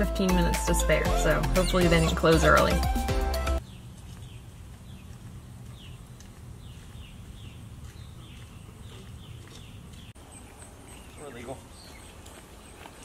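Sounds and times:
bird calling: 1.1 - 2.8, 6.6 - 13.0.

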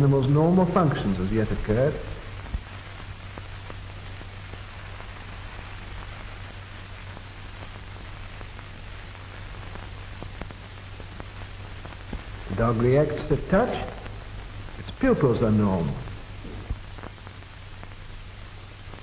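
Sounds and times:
film soundtrack hiss: 0.0 - 19.0
low hum: 0.0 - 19.0
crackles and clicks: 0.2 - 19.0.

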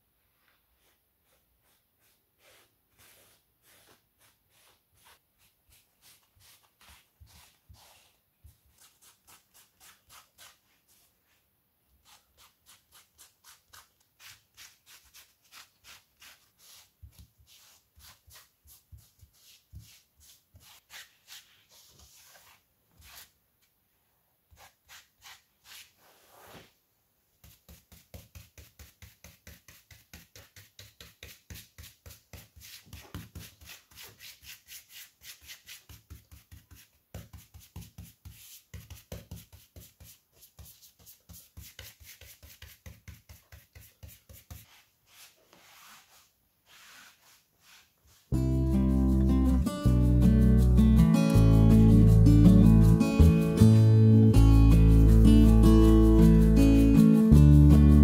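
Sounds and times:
cloth and brush rubbing wood: 0.4 - 8.2, 12.0 - 23.3, 24.6 - 26.8, 40.1 - 48.3.

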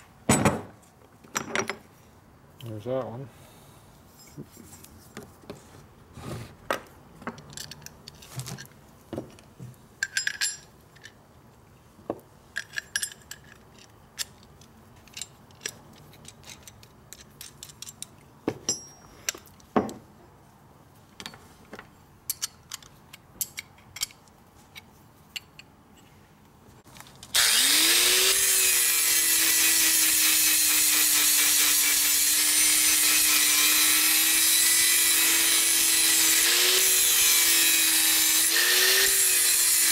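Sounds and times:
metal parts clicking and knocking: 7.2 - 11.2, 12.5 - 20.0, 21.2 - 26.0
angle grinder grinding metal: 27.4 - 39.9.

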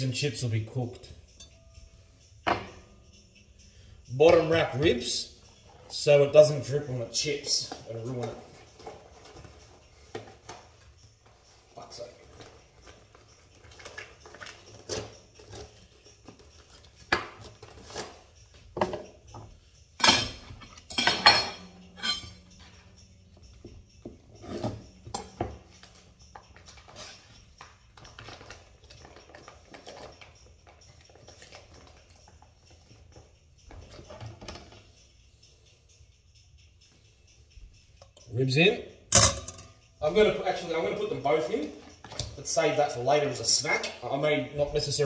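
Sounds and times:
metal tray and rack clattering: 20.0 - 22.8.

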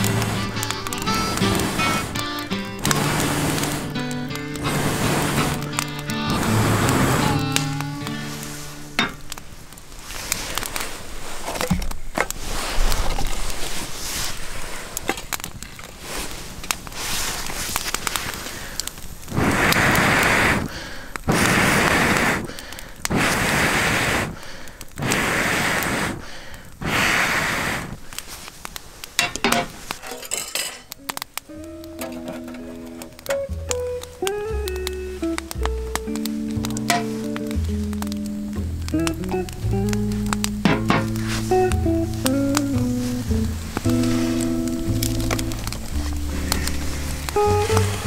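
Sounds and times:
air blown through blowpipe: 0.0 - 9.2, 40.6 - 48.0
wood fire crackling and popping: 0.0 - 48.0.

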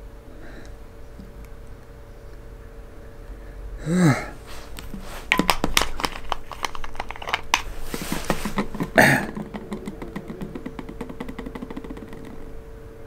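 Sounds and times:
plastic bottle crackling: 4.4 - 12.5
bottle knocking on table: 5.3 - 5.8.

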